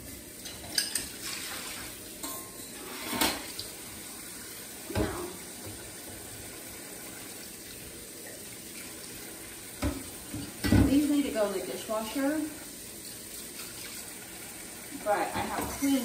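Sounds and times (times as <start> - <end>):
dishes knocking and clinking: 0.4 - 1.2, 2.2 - 3.5, 4.9 - 5.8, 9.8 - 11.0
tap running into sink: 9.8 - 11.1.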